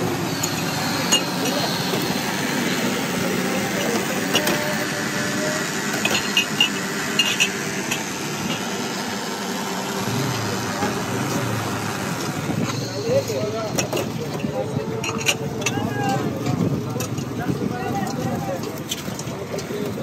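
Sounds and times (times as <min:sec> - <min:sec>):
street traffic: 0:00.0 - 0:20.0
glasses and utensils clinking: 0:00.3 - 0:04.9, 0:05.9 - 0:08.7, 0:12.6 - 0:17.3.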